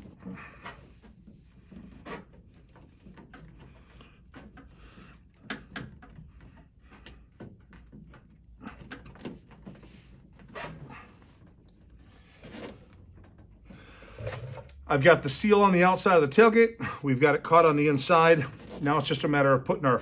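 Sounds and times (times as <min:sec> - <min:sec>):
clicks and knocks of rubber: 0:00.0 - 0:14.9
rubber seal rubbing on metal: 0:00.0 - 0:15.2.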